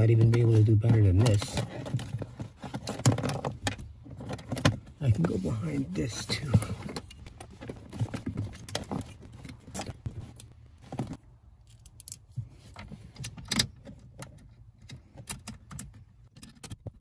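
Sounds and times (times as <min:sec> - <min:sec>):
clicks and rattles of plastic trim: 0:00.0 - 0:05.4.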